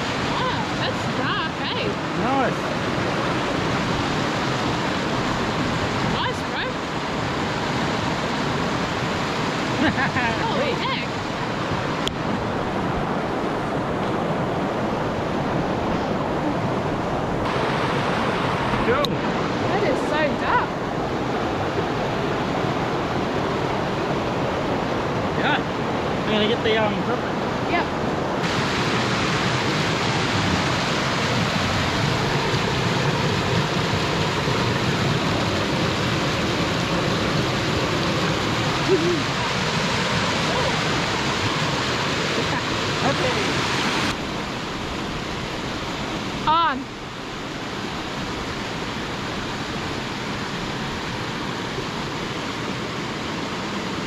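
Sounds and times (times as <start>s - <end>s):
water rushing over weir: 0.0s - 54.0s.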